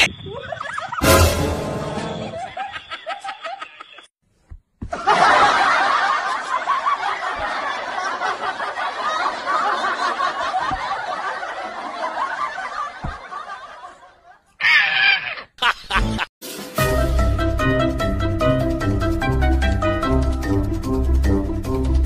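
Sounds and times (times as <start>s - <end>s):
group of people laughing: 0.1s - 1.1s, 1.9s - 4.1s, 4.9s - 14.9s, 15.6s - 16.3s.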